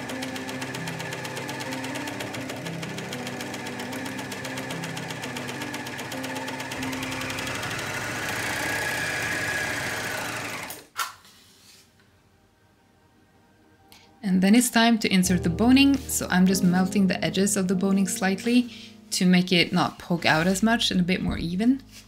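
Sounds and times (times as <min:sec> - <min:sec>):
overlocker stitching: 0:00.0 - 0:11.1.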